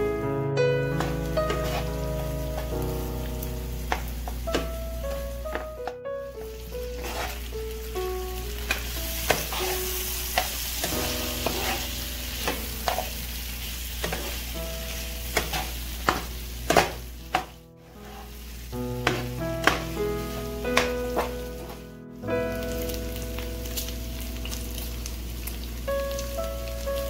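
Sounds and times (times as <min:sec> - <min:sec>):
meat sizzling in a frying pan: 0:00.9 - 0:27.0
spoon clicking and scraping pan: 0:01.0 - 0:01.8, 0:07.0 - 0:07.4, 0:08.6 - 0:13.1, 0:14.0 - 0:14.4, 0:15.3 - 0:18.3.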